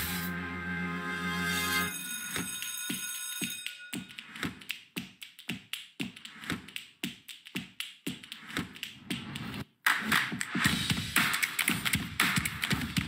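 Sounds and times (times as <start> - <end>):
held synth chord: 0.0 - 2.0
sharp clicky beats: 3.6 - 13.0.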